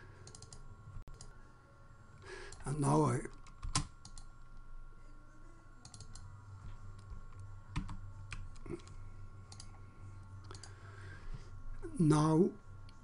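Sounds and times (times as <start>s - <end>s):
low electrical hum: 0.0s - 13.0s
keyboard and mouse clicks: 0.2s - 1.3s, 3.3s - 4.3s, 5.8s - 6.2s.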